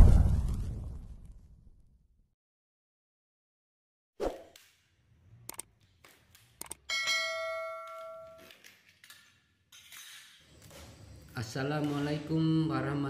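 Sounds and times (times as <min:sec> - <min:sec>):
sharp clicks: 0:05.5 - 0:05.7, 0:06.3 - 0:06.8
bell ding: 0:06.9 - 0:08.4.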